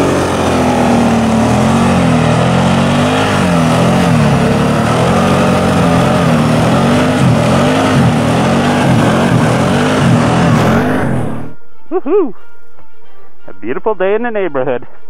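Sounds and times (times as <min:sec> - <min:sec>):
quad engine revving: 0:00.0 - 0:11.6.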